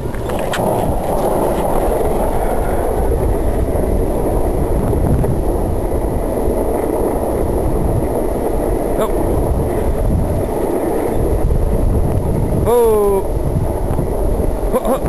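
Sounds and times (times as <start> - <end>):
longboard wheels rolling on pavement: 0.0 - 15.0.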